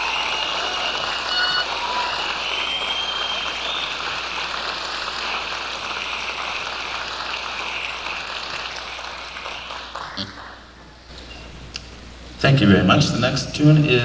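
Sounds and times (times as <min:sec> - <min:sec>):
high whistle: 0:00.0 - 0:04.4
audience applauding: 0:00.0 - 0:11.0.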